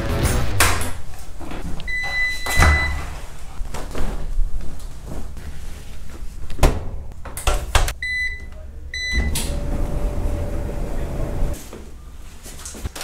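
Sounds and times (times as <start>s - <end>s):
washing machine clunks: 1.9s - 3.1s
washing machine humming: 6.8s - 12.0s.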